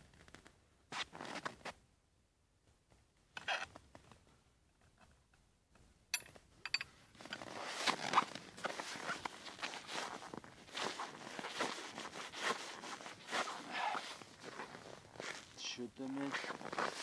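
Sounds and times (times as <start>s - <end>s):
clothing rustling: 7.2s - 17.0s
footsteps in snow: 7.2s - 17.0s.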